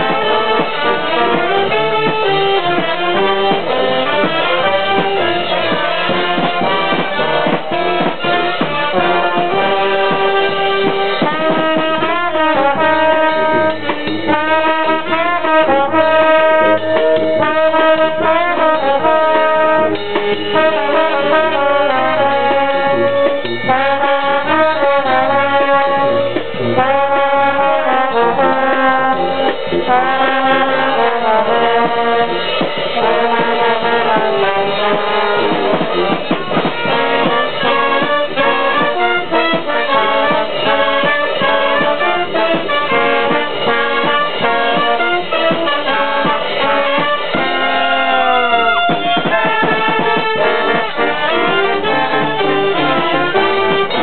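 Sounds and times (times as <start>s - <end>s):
brass band playing: 0.0s - 54.0s.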